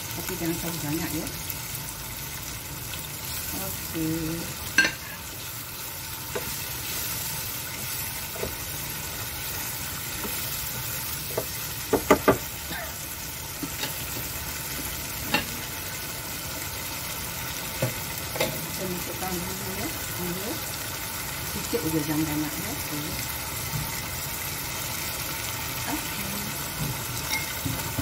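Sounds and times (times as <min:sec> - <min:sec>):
food sizzling in frying pan: 0:00.0 - 0:28.0
spatula knocking against pan: 0:11.4 - 0:12.5.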